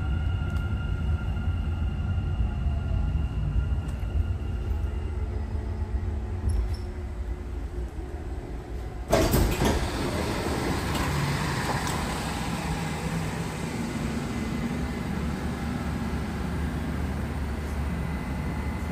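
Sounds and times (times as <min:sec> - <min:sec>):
loud rush of train noise: 0:00.0 - 0:18.9
metro train rumble: 0:00.0 - 0:18.9.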